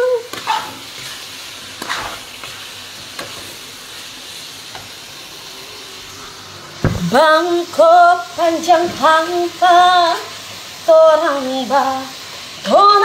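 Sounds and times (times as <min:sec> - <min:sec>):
meat sizzling in wok: 0:00.0 - 0:13.0
spatula scraping pan: 0:00.3 - 0:03.6.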